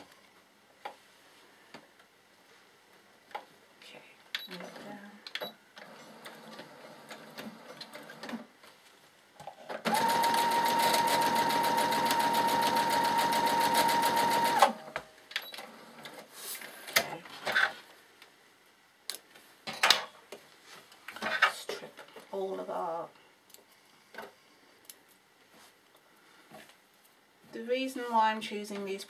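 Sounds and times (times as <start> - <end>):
sewing machine stitching: 9.8 - 14.8.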